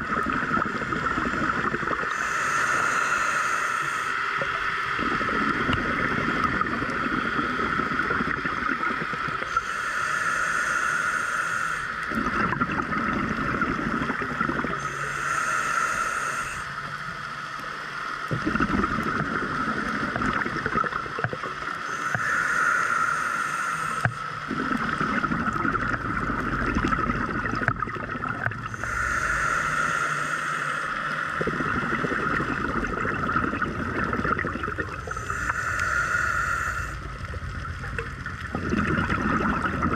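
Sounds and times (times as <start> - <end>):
bubbling gurgle on exhale: 0.0 - 2.4, 4.4 - 9.8, 12.1 - 14.9, 18.2 - 22.4, 24.0 - 30.0, 31.3 - 39.9
steady hum: 0.0 - 39.9
regulator hiss on inhale: 0.4 - 8.4, 9.4 - 12.8, 13.4 - 18.2, 21.1 - 25.2, 27.5 - 32.6, 34.9 - 37.4.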